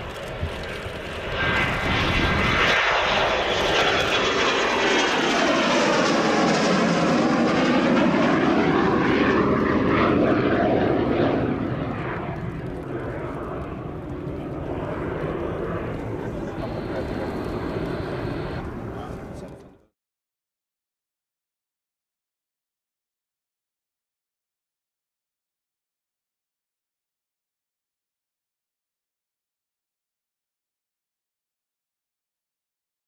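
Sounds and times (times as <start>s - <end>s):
jet taking off: 0.0s - 19.9s.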